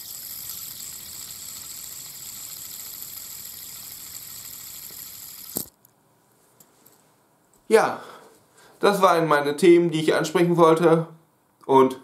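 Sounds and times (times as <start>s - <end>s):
fidget spinner whirring: 0.0s - 5.8s.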